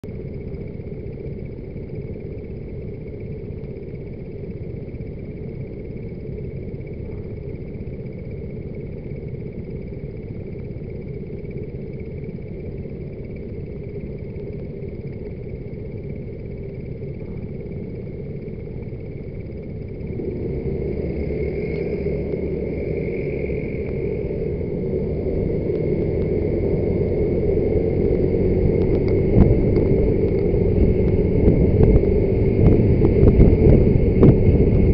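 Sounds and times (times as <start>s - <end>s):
road noise: 20.0s - 34.9s
scooter accelerating: 20.2s - 34.9s.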